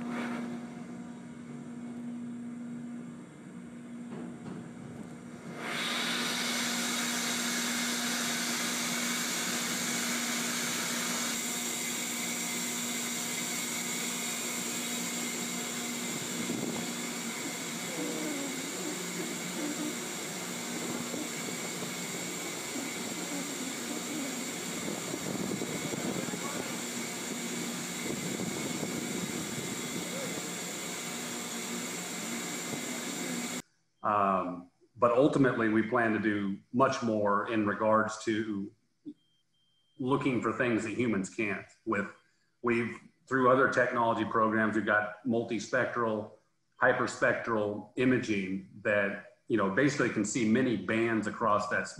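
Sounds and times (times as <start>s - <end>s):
constant hum: 0.0s - 5.8s, 7.1s - 33.6s
machinery drone: 0.0s - 34.5s
faint voices: 17.8s - 27.0s, 30.0s - 30.8s.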